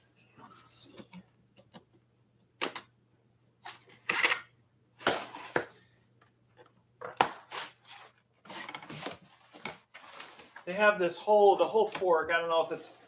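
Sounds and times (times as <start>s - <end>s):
packaging rustling and crinkling: 7.5s - 10.7s.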